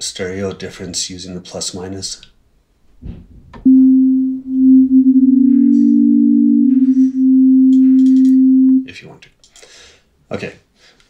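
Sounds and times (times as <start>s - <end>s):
pure sine tone: 3.6s - 8.9s.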